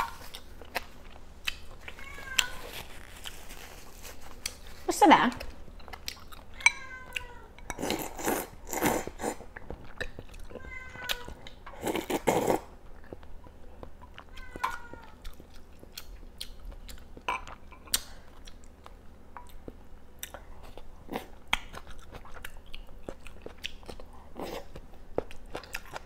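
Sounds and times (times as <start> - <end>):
chewing: 0.0 - 26.0
cat meowing: 1.8 - 2.9, 6.6 - 7.5, 10.6 - 11.5, 14.3 - 15.2
slurping hot broth: 11.8 - 12.7.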